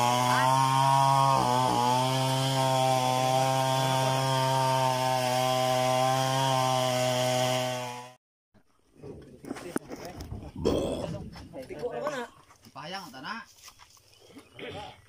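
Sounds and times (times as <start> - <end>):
chainsaw engine running: 0.0 - 8.2.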